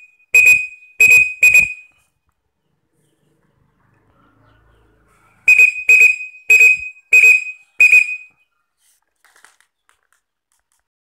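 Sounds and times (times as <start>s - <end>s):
whistle blasts: 0.0s - 1.9s, 5.5s - 8.3s.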